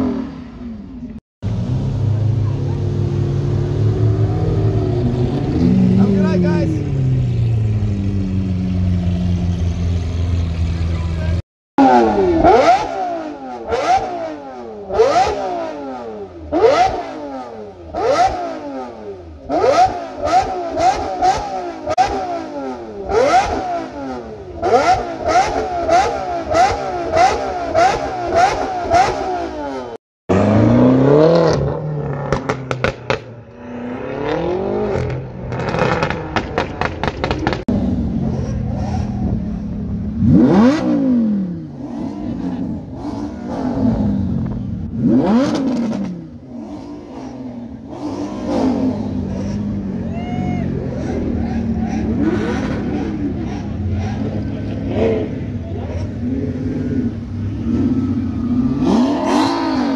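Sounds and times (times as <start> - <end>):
car engine revving: 0.0 - 59.9
car accelerating with sharp cracks: 30.3 - 39.5, 50.9 - 56.2.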